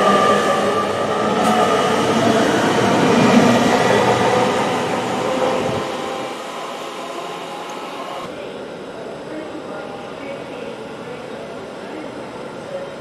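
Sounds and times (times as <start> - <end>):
train passing with rushing rumble: 0.0 - 8.2.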